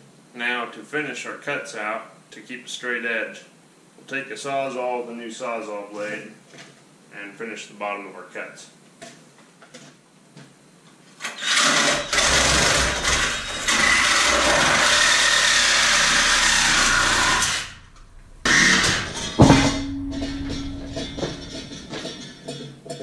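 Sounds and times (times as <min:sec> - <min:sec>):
reciprocating saw cutting steel: 0:11.7 - 0:19.8
sharp ringing metal clang: 0:17.8 - 0:22.6.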